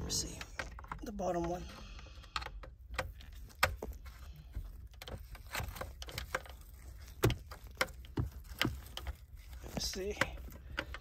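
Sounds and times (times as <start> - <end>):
clicks of tools and plastic trim: 0.1 - 11.0.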